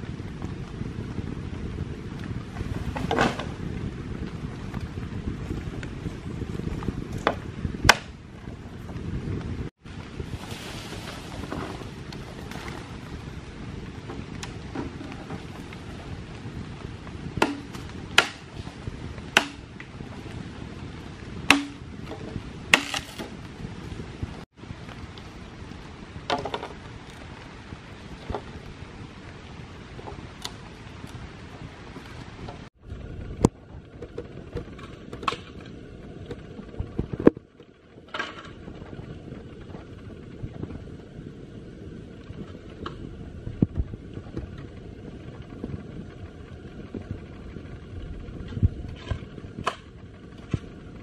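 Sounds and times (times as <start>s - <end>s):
machete chopping bamboo: 7.2s - 8.2s, 17.4s - 18.5s, 19.3s - 19.7s, 21.5s - 21.8s, 22.7s - 23.3s
bamboo pole knocking into ground: 21.5s - 21.8s.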